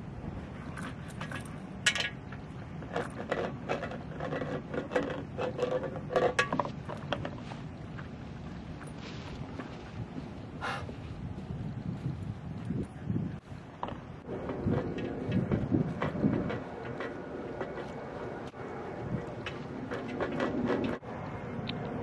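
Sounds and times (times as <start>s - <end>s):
chain leash rattling: 0.6s - 7.5s
wind on microphone: 6.6s - 22.0s.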